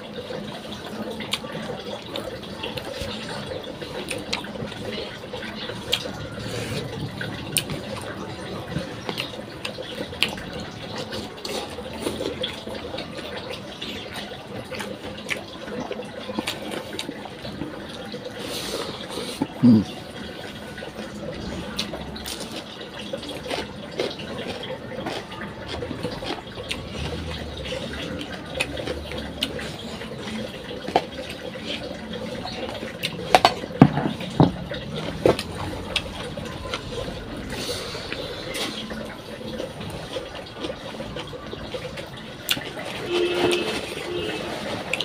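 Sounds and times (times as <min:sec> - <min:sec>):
wet chewing and lip smacking: 0:21.8 - 0:43.0.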